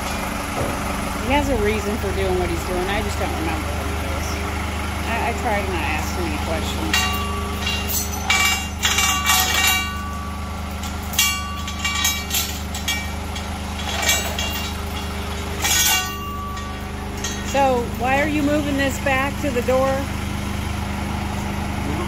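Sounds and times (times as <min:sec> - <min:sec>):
diesel engine idling: 0:00.0 - 0:22.0
steel chain rattling and clinking: 0:05.1 - 0:20.0.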